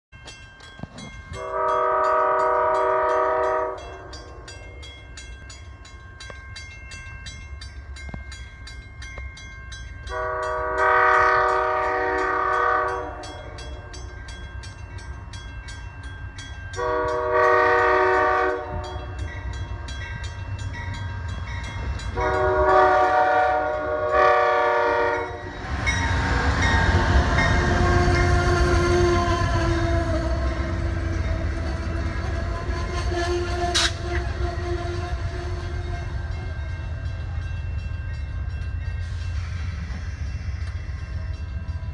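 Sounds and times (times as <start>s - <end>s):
crossing bell ringing: 0.1s - 41.9s
train wheels and engine: 0.1s - 41.9s
train air horn blasts: 1.4s - 4.2s, 10.1s - 14.0s, 16.8s - 19.3s, 22.2s - 25.5s, 27.6s - 36.4s.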